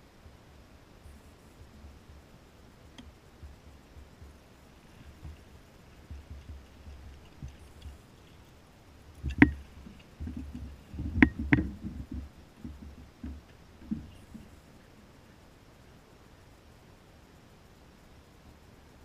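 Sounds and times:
knocks and rattles against kayak hull: 3.0 - 8.5, 9.1 - 14.6.

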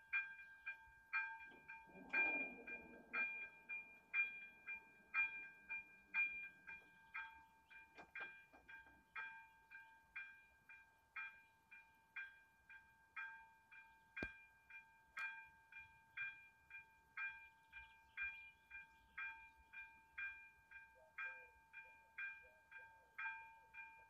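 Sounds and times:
level crossing bell ringing: 0.0 - 8.5.

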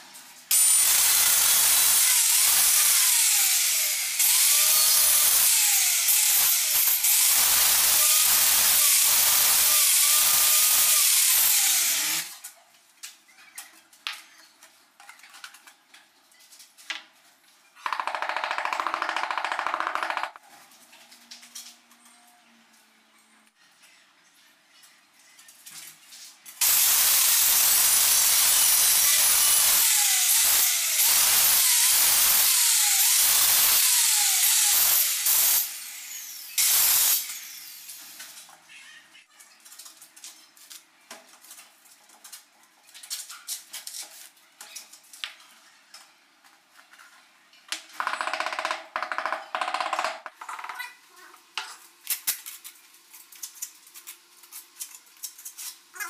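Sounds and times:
electric tile cutter cutting tile: 0.5 - 12.4, 26.6 - 38.2.

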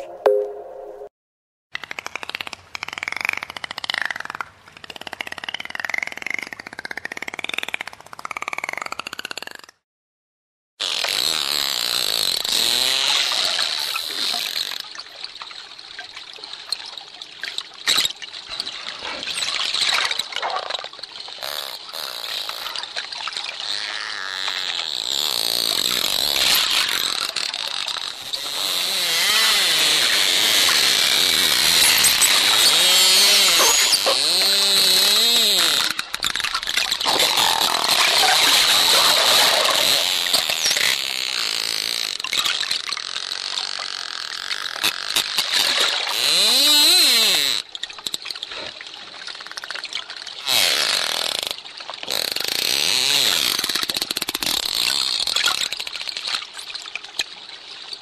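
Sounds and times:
dolphin clicking and buzzing: 1.8 - 9.8, 20.4 - 48.6, 49.5 - 56.6
dolphin whistles: 31.7 - 35.8.

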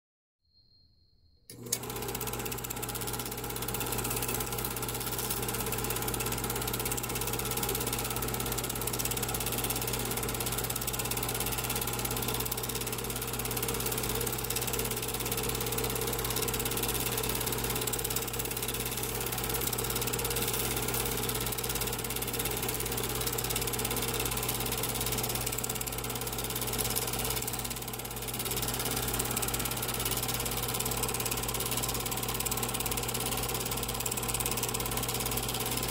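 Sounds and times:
film advancing clatter: 1.5 - 35.9
film projector whirring: 1.5 - 35.9.

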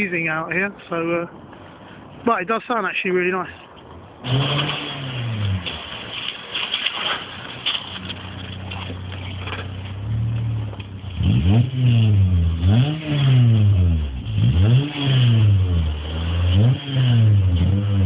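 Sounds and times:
car engine idling and revving: 4.2 - 18.0.

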